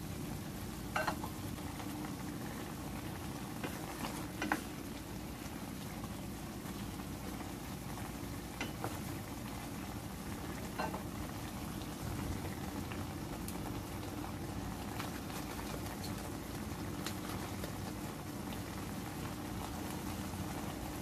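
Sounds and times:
meat simmering in a pan: 0:00.0 - 0:21.0
small pops and ticks: 0:16.9 - 0:17.8.

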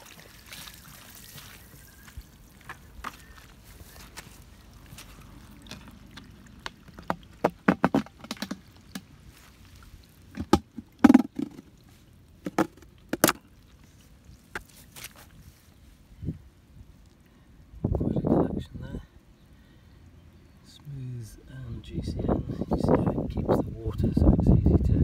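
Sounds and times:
plastic bucket lid knocks: 0:10.4 - 0:11.6.

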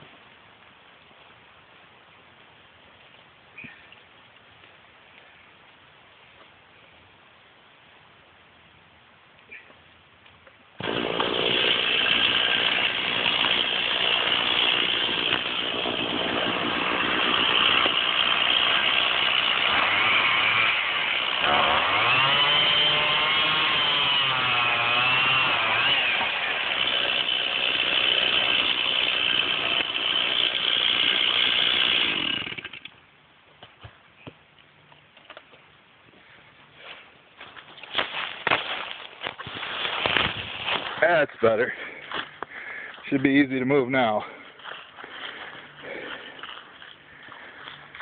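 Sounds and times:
chainsaw cutting wood: 0:10.8 - 0:33.0, 0:38.0 - 0:41.0.

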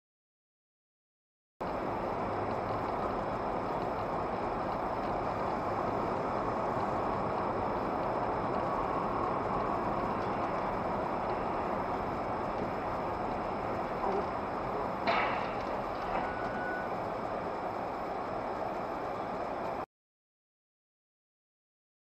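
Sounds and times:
car engine and tyre noise: 0:01.6 - 0:19.8.

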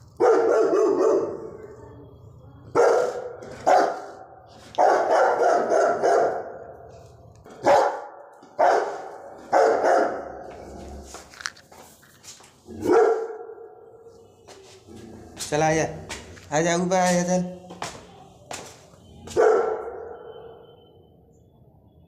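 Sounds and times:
dog barking: 0:00.2 - 0:01.6, 0:02.7 - 0:06.8, 0:07.5 - 0:10.6, 0:12.7 - 0:14.1, 0:19.3 - 0:20.8.

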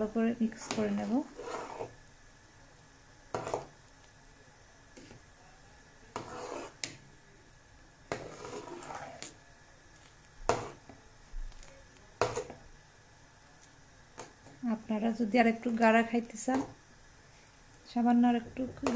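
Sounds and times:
spoon scraping pot: 0:00.5 - 0:02.0, 0:03.3 - 0:03.7, 0:06.1 - 0:07.0, 0:08.1 - 0:09.4, 0:10.5 - 0:10.9.

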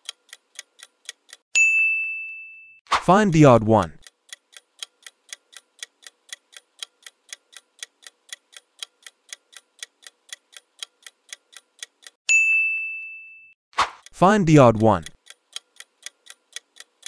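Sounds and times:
clock ticking: 0:00.0 - 0:01.4, 0:03.4 - 0:12.2, 0:14.0 - 0:17.0
bell-like ding: 0:01.6 - 0:02.8, 0:12.3 - 0:13.6.

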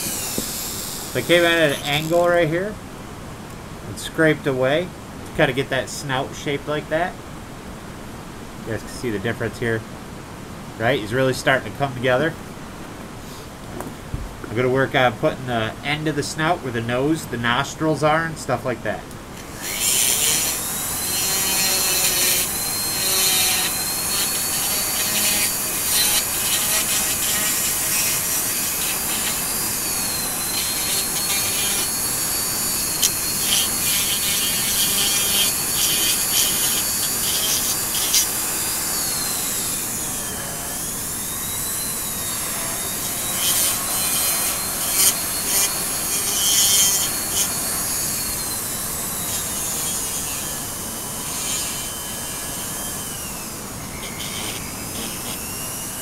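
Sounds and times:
rotary tool motor whine: 0:00.0 - 0:02.2, 0:19.4 - 0:56.0
burr grinding wood: 0:00.0 - 0:02.8, 0:19.4 - 0:56.0.

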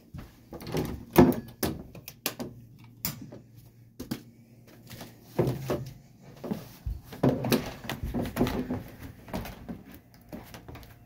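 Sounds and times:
footsteps on wooden stairs: 0:00.0 - 0:01.0, 0:04.0 - 0:11.0
faint low furnace hum: 0:00.0 - 0:11.0.

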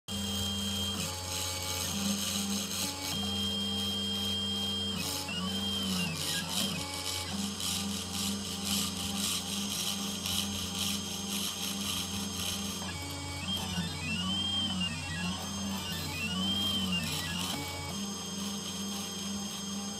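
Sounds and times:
router spindle humming and hissing: 0:00.1 - 0:19.9
stepper motors whining: 0:00.1 - 0:19.9.

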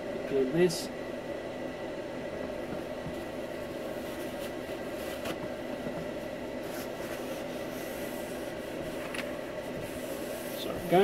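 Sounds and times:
steady background hum: 0:00.0 - 0:11.0
paper towel rubbing on wood: 0:06.6 - 0:11.0.

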